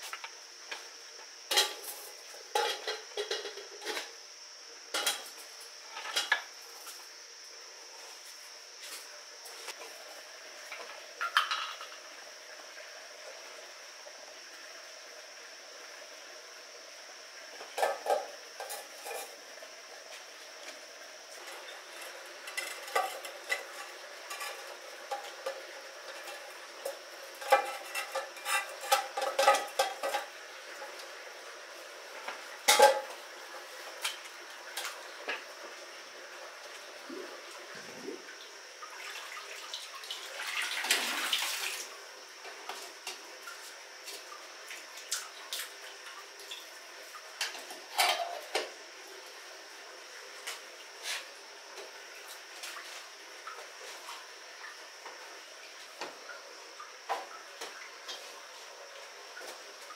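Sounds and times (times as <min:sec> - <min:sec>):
metal pot and utensils clinking: 0:01.5 - 0:04.1, 0:17.7 - 0:19.4, 0:21.4 - 0:30.3, 0:32.7 - 0:33.2, 0:47.4 - 0:48.6.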